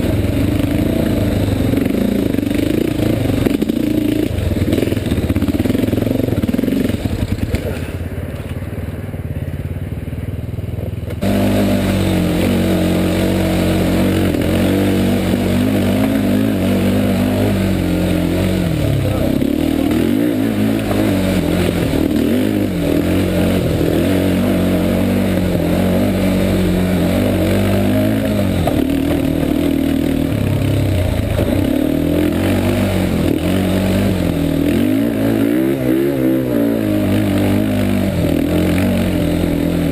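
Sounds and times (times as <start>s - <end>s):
atv engine running under load: 0.0s - 39.9s.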